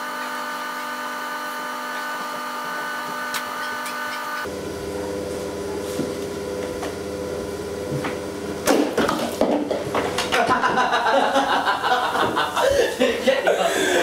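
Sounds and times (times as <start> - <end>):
steady hum: 0.0 - 14.0
man laughing: 10.3 - 14.0.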